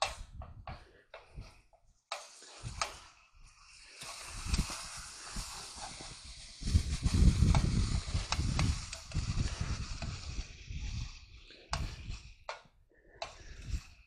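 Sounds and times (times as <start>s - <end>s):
meat sizzling in a skillet: 3.7s - 9.0s.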